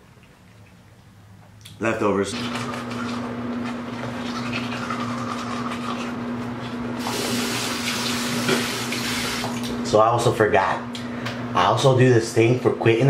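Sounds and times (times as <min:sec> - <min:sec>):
steady hum: 0:00.0 - 0:13.0
toothbrush scrubbing teeth: 0:04.0 - 0:06.2
faucet running into sink: 0:07.0 - 0:09.6.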